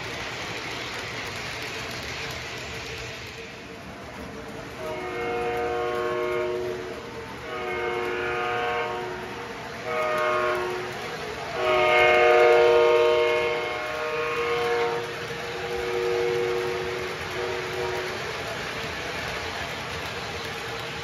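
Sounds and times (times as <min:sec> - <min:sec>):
model train horn blasts: 0:04.8 - 0:18.2.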